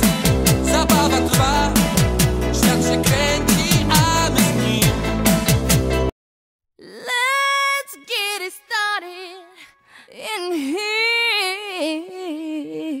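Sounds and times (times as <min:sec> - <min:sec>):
person singing unaccompanied: 0:00.0 - 0:05.1, 0:06.8 - 0:13.0.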